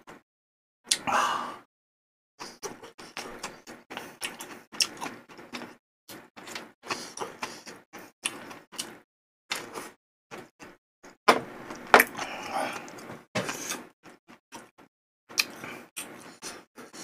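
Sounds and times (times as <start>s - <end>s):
chewing: 2.4s - 10.8s.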